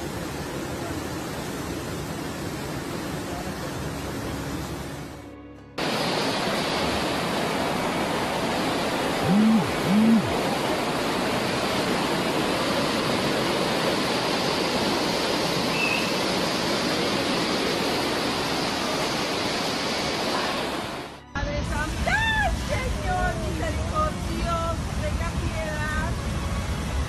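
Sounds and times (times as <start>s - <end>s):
floodwater rushing: 0.0s - 5.2s, 5.8s - 27.0s
low hoot-like sounds: 9.2s - 10.4s.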